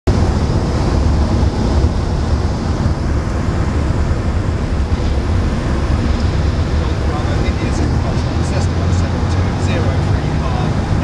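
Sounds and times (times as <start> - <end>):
airplane engine droning: 0.1 - 11.0.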